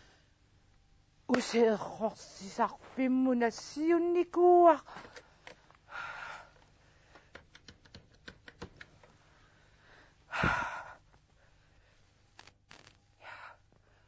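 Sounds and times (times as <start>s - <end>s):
woman breathing: 4.9s - 7.4s, 9.2s - 12.2s, 13.2s - 14.0s.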